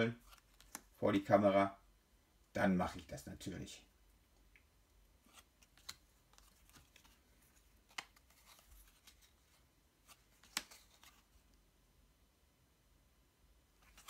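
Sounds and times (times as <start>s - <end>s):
cards rustling: 0.1s - 1.0s, 5.1s - 11.6s, 13.8s - 14.0s.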